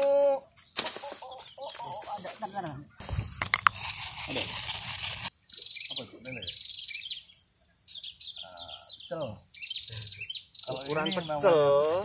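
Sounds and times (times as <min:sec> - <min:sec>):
insects chirping: 0:00.0 - 0:12.0
bird calls: 0:00.2 - 0:12.0
loud rustling: 0:03.0 - 0:05.3.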